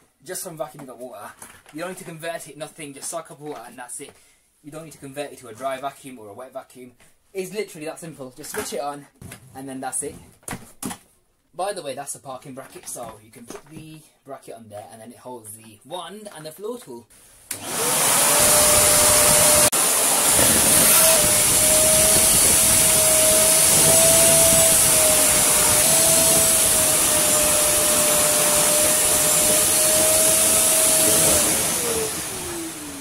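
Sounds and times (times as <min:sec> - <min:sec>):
vacuum cleaner whining: 0:17.5 - 0:33.0
vacuum winding down: 0:17.5 - 0:33.0.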